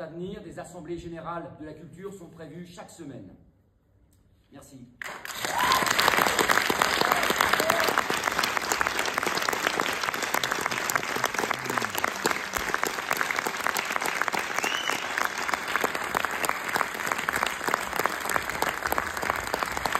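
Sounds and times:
audience applauding: 0:05.0 - 0:19.9.

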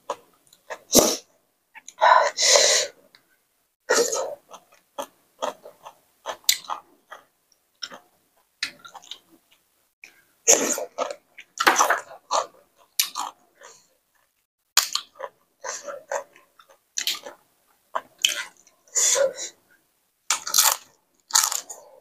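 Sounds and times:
person chewing wetly: 0:04.5 - 0:10.2, 0:11.0 - 0:18.7.

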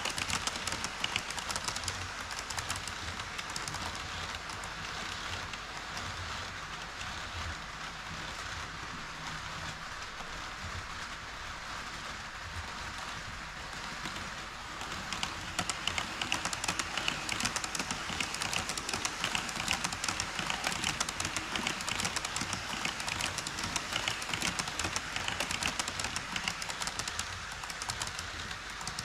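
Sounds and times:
model train wheels clicking: 0:00.0 - 0:29.0
steady hiss: 0:08.9 - 0:29.0.

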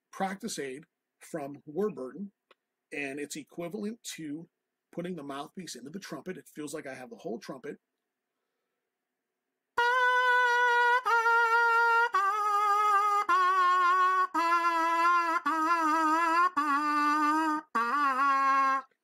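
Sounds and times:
trumpet mouthpiece buzzing notes: 0:09.8 - 0:19.0.

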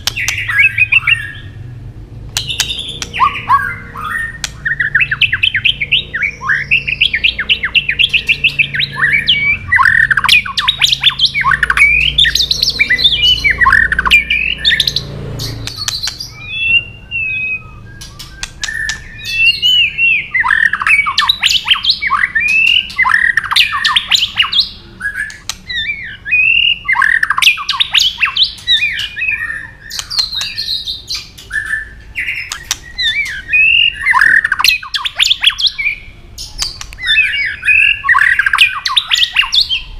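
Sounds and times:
bird sharp clicking notes: 0:00.0 - 0:01.0, 0:02.3 - 0:05.9, 0:09.8 - 0:16.8, 0:18.0 - 0:19.6, 0:25.2 - 0:25.9, 0:29.8 - 0:31.6, 0:32.3 - 0:35.8, 0:36.6 - 0:37.3
bird singing whistled phrases: 0:00.0 - 0:01.6, 0:02.4 - 0:39.9.

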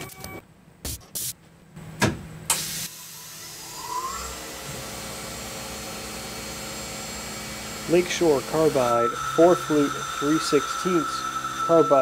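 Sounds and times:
rising whistle: 0:08.1 - 0:12.0.

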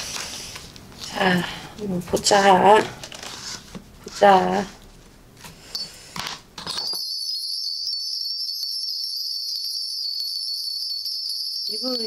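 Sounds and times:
hand bells jingling: 0:06.6 - 0:12.0.

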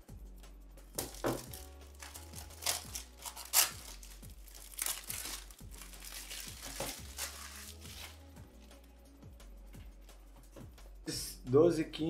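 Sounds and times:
packaging crinkling: 0:01.0 - 0:08.2.

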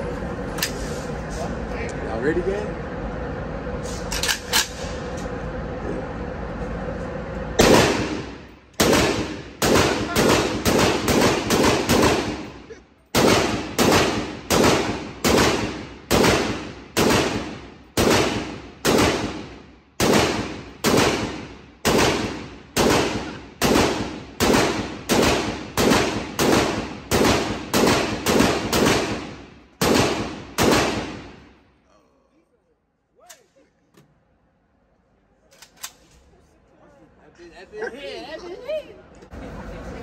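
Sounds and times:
pistol gunshots echoing indoors: 0:07.6 - 0:12.6, 0:13.2 - 0:31.4.

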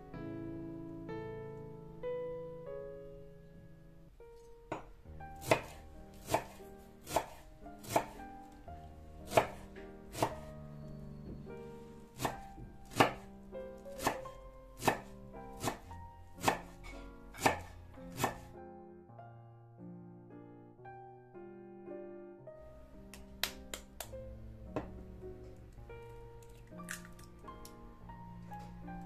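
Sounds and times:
knife chopping on wooden board: 0:04.7 - 0:08.2, 0:09.3 - 0:10.5, 0:12.2 - 0:13.3, 0:13.9 - 0:18.5.

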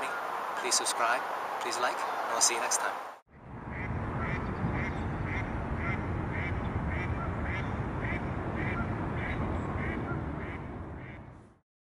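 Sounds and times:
steady low rumble: 0:03.3 - 0:11.6.

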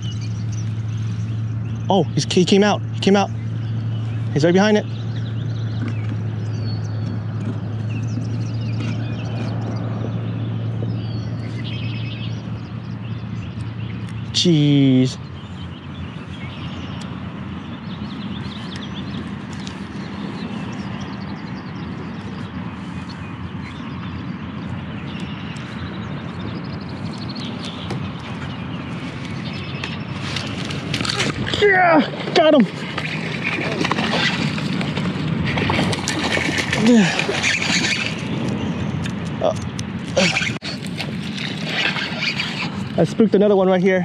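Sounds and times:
wind buffeting microphone: 0:00.0 - 0:14.4, 0:15.1 - 0:44.0
birds chirping: 0:00.0 - 0:44.0
low hum and rushing noise: 0:00.0 - 0:44.0.

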